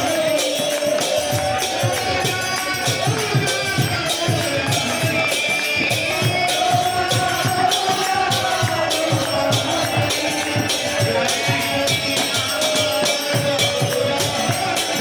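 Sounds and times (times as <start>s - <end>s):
group chanting: 0.0s - 15.0s
hand cymbals clashing: 0.0s - 15.0s
harmonium: 0.0s - 15.0s.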